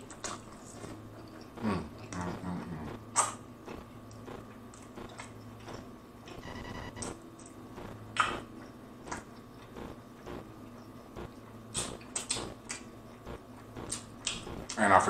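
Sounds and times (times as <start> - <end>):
wet chewing: 0.0 - 6.4, 8.2 - 14.8
lip smacks: 3.1 - 3.4.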